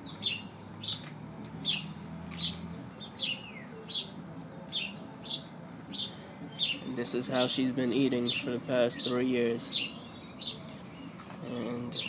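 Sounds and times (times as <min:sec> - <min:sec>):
small bird chirping: 0:00.0 - 0:07.6.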